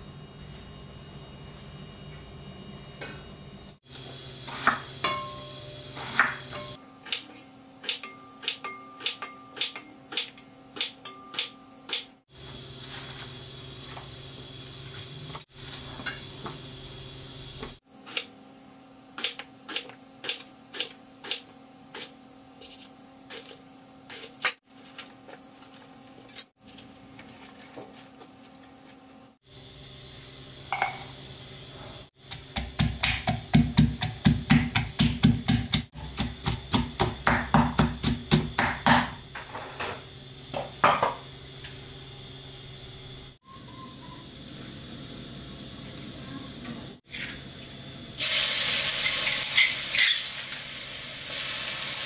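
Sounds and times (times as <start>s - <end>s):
pestle pounding in stone mortar: 32.2s - 39.2s.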